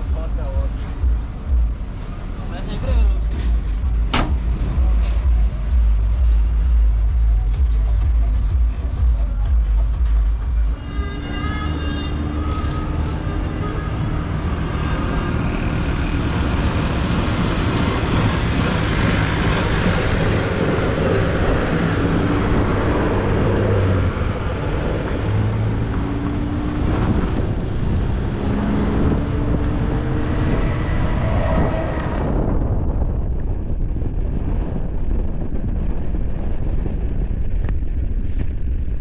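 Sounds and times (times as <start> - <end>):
truck engine running: 0.0 - 10.8
tyre and wind noise: 0.0 - 39.0.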